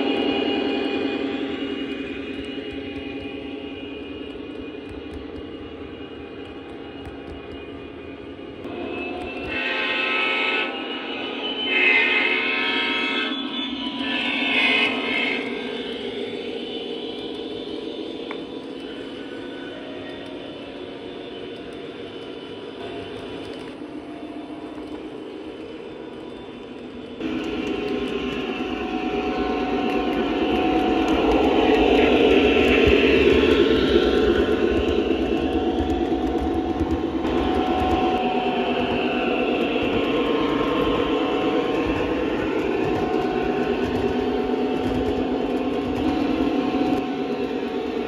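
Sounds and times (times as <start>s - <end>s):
model train wheels rumbling: 27.2s - 48.0s.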